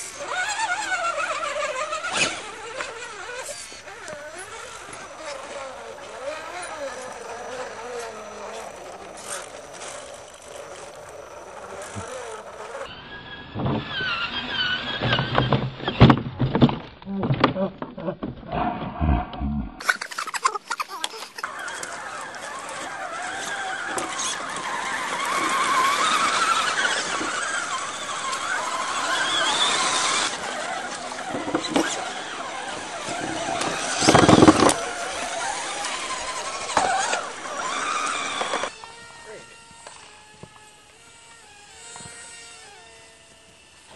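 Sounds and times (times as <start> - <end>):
high rc motor whine: 0.0 - 16.2, 18.5 - 43.9
rc truck motor whining: 0.0 - 17.0, 19.4 - 43.9
truck tumbling clattering knocks: 14.8 - 18.5, 22.3 - 38.7
rush of noise: 18.5 - 19.8.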